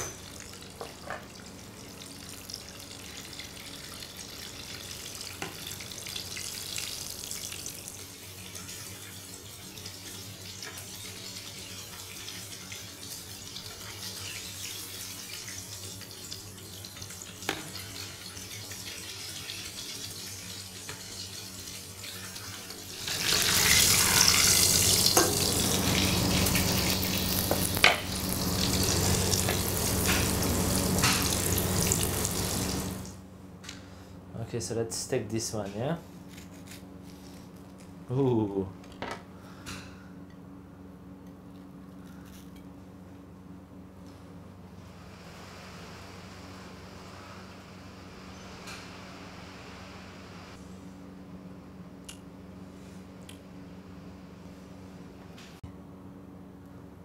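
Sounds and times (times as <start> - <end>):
deep-frying sizzle: 0.0 - 33.2.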